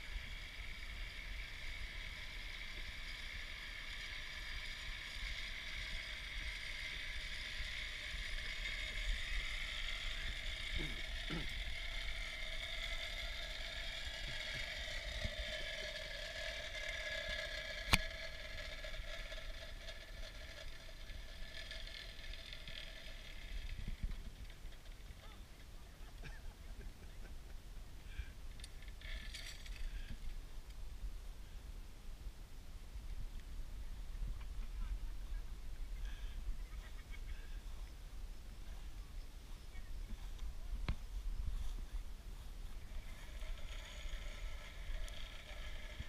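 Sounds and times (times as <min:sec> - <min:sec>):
zip line pulleys whirring: 0:00.0 - 0:30.9, 0:33.1 - 0:46.0
wind rumble on microphone: 0:23.4 - 0:24.7.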